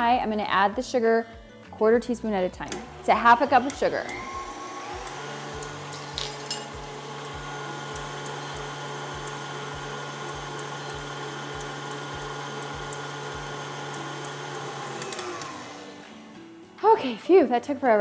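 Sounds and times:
electric mixer whipping: 2.7s - 16.2s.

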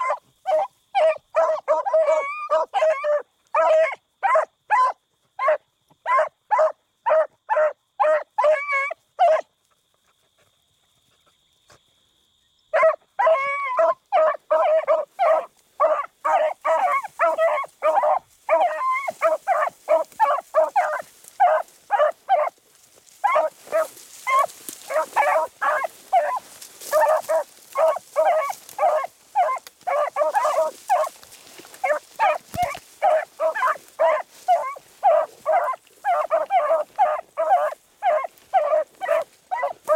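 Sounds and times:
dogs baying: 0.0s - 9.5s, 12.8s - 39.9s
dry brush rustling: 14.9s - 39.9s.

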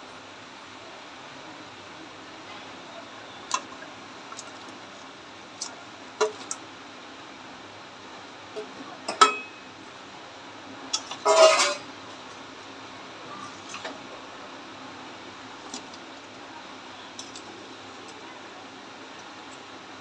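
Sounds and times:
metal clinks and knocks in pan: 9.1s - 9.5s.

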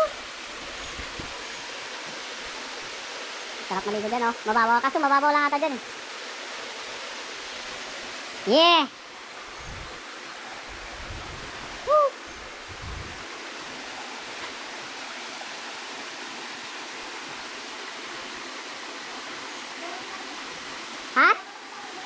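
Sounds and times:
person exclaiming: 11.8s - 12.2s
waterfall pouring into pool: 13.2s - 22.0s.

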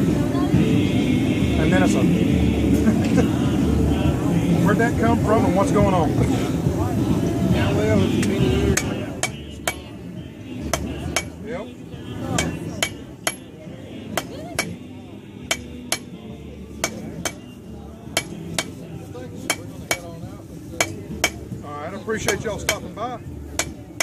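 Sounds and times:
hammer striking metal on anvil: 8.8s - 9.9s, 10.7s - 11.4s, 12.4s - 13.5s, 14.2s - 14.8s, 15.5s - 16.1s, 16.8s - 17.4s, 18.2s - 18.8s, 19.5s - 20.1s, 20.8s - 21.4s, 22.2s - 22.9s, 23.6s - 23.8s.

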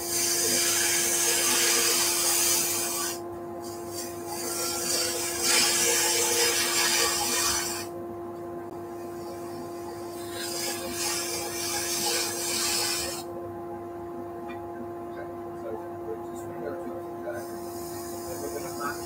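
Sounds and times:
chisel shaving on wood lathe: 0.0s - 7.9s, 9.0s - 13.3s, 17.3s - 19.0s
lathe motor hum: 0.0s - 7.9s, 8.6s - 13.4s, 16.3s - 19.0s.

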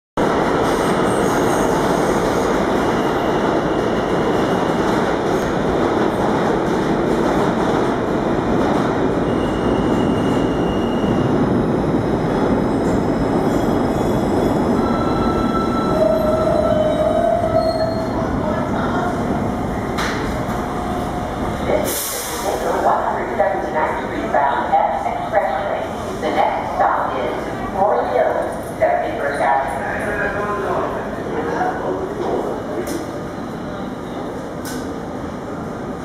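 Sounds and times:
train brakes squealing: 9.3s - 11.3s.

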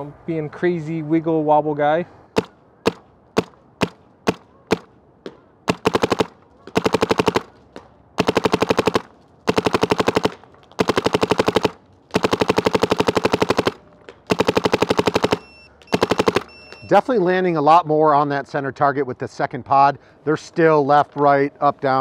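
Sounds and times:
paintball marker firing: 2.4s - 16.9s.

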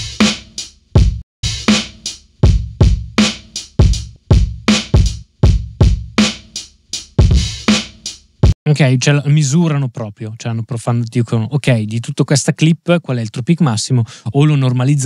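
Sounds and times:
drum loop kick and snare: 0.0s - 8.6s.

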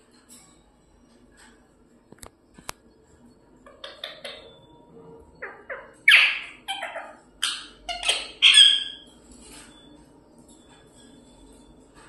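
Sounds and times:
parrot squawking: 5.4s - 9.1s.

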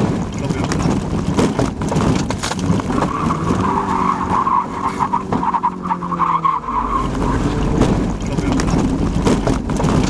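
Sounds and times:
car engine under load: 0.0s - 10.0s
tyres squealing: 2.8s - 9.2s.

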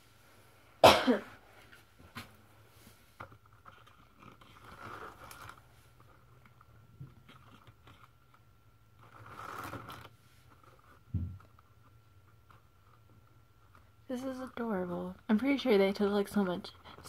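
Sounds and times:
paper pages turning: 3.1s - 13.9s.

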